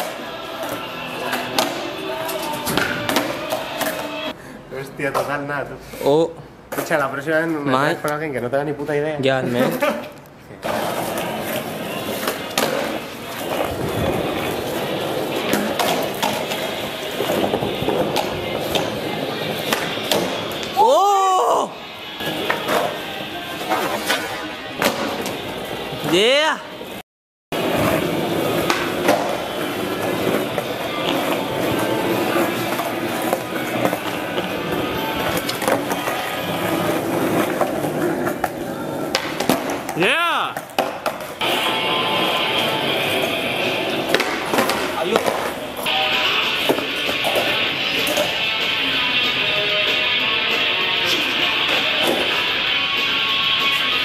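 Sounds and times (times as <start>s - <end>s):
background music: 0.0s - 4.4s, 11.0s - 27.0s, 27.6s - 54.0s
skateboard wheels rolling on stone: 0.0s - 4.4s, 9.5s - 20.8s, 22.1s - 26.2s, 27.6s - 54.0s
skateboard clacks: 9.7s - 20.8s, 27.6s - 48.8s.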